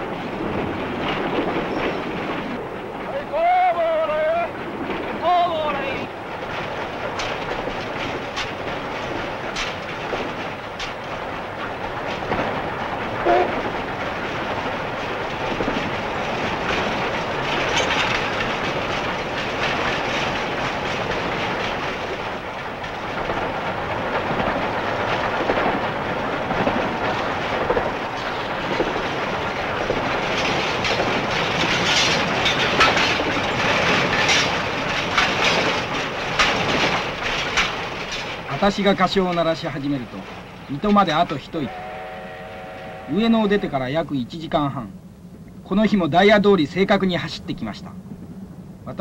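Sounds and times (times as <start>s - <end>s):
steam locomotive running: 0.0s - 49.0s
train rattling: 0.0s - 49.0s.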